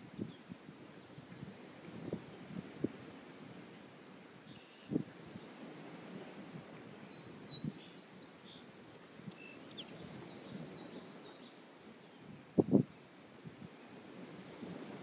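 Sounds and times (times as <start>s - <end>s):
small birds chirping: 6.9s - 12.4s.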